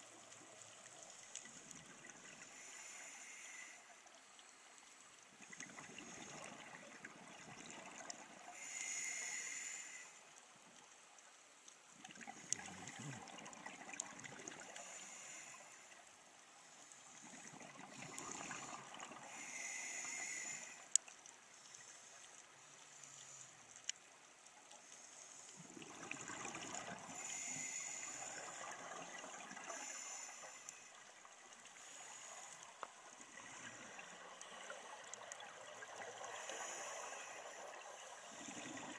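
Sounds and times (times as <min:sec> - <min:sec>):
regulator inhale hiss: 0:02.2 - 0:04.6, 0:08.4 - 0:10.4, 0:14.5 - 0:23.7, 0:26.3 - 0:38.9
small clicks: 0:20.8 - 0:25.2
exhaled bubbles rushing: 0:25.6 - 0:27.2.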